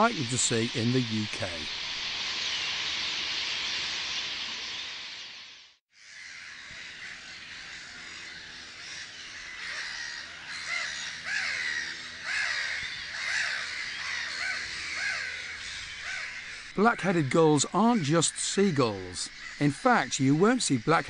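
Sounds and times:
gulls calling: 0.0s - 5.3s, 6.0s - 21.0s
distant gull calls: 6.0s - 21.0s.

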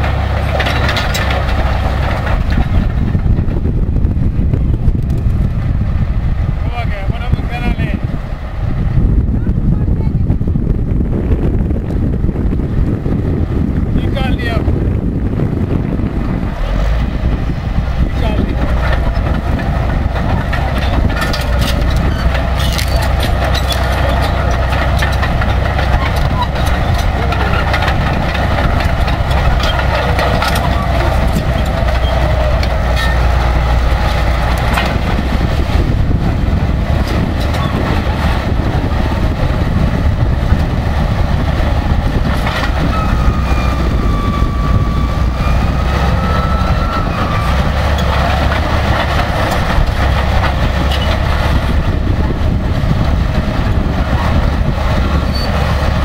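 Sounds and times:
steel tracks clanking: 0.0s - 3.7s, 16.6s - 56.0s
bulldozer diesel engine: 0.0s - 56.0s.

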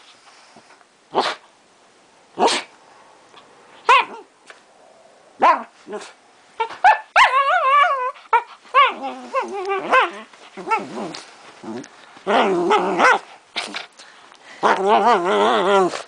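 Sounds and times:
small dog barking and yipping: 3.8s - 4.3s, 5.4s - 11.0s, 12.3s - 13.8s
dog whine-growl: 8.8s - 13.9s, 14.6s - 16.0s.

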